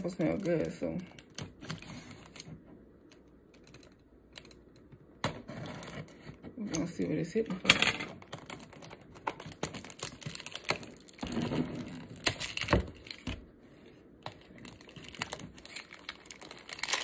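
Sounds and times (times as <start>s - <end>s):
packaging crinkling and rustling: 0.0s - 4.6s, 8.1s - 13.6s, 14.2s - 17.0s.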